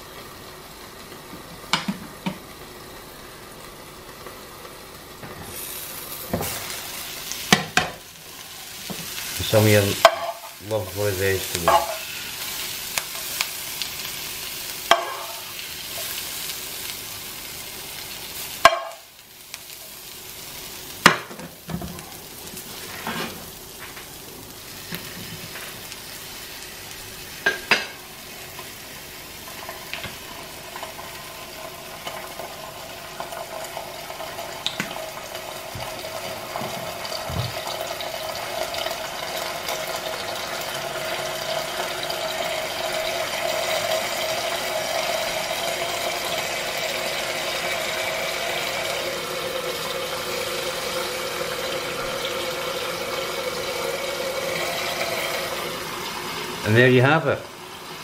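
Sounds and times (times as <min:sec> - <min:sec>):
vegetables sizzling in a frying pan: 0:00.0 - 0:58.0
spoon scraping and knocking on pan: 0:07.5 - 0:08.0, 0:10.0 - 0:10.6, 0:11.6 - 0:12.1, 0:14.9 - 0:15.4.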